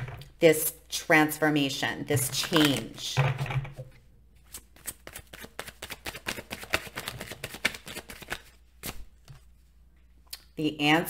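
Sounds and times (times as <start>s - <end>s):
cards being shuffled: 2.3s - 3.0s, 4.4s - 9.5s.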